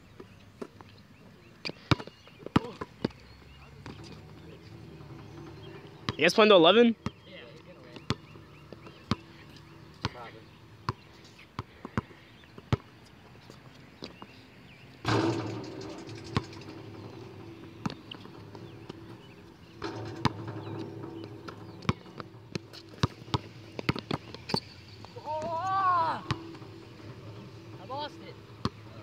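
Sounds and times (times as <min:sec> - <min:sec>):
basketball bouncing on hard court: 0:07.9 - 0:09.3, 0:15.0 - 0:25.6, 0:26.2 - 0:27.8.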